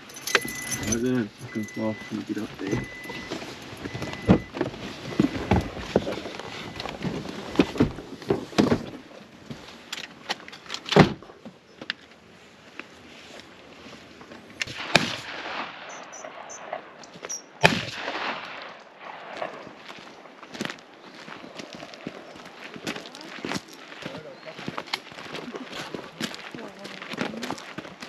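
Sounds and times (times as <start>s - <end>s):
sharp bangs: 14.6s - 19.8s
footsteps on gravel: 19.3s - 28.0s.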